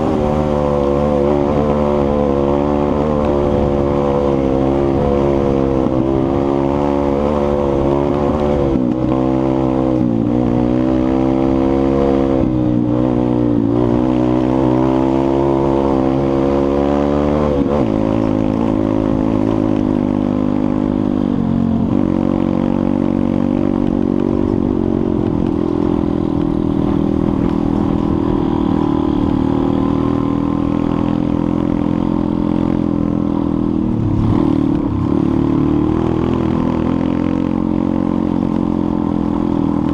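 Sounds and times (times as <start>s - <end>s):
motorbike engine revving: 0.0s - 39.9s.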